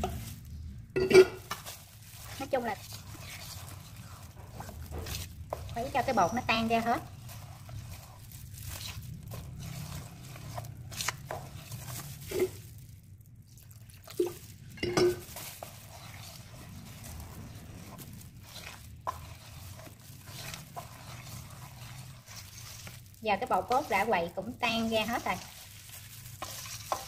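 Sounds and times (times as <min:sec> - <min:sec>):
batter stirred in a bowl: 0:00.0 - 0:27.0.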